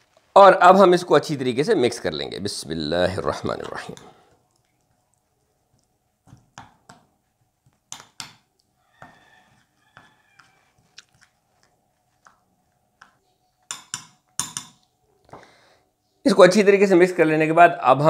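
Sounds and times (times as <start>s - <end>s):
spoon scraping glass bowl: 9.0s - 12.4s
spoon clinking on glass: 13.7s - 14.8s.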